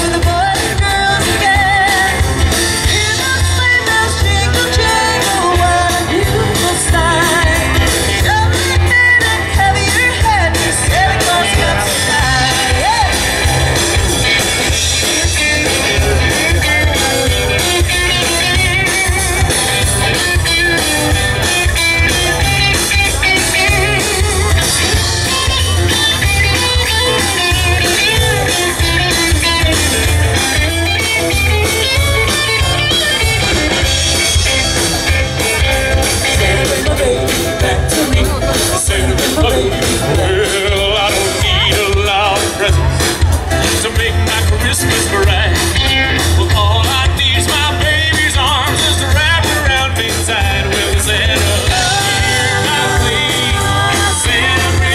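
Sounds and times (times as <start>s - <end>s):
person singing: 0.0s - 13.8s, 31.6s - 54.9s
live rock band playing: 0.0s - 54.9s.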